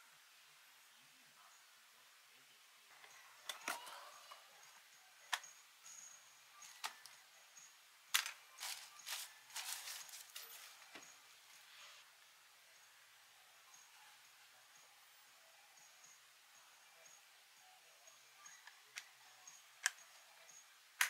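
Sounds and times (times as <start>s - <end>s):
plastic wrapping crinkling: 8.2s - 11.0s.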